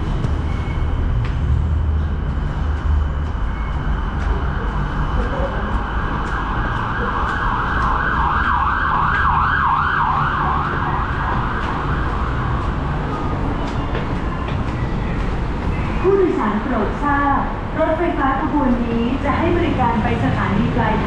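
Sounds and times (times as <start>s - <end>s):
train car rumble: 0.0s - 21.0s
siren warbling: 3.6s - 13.5s.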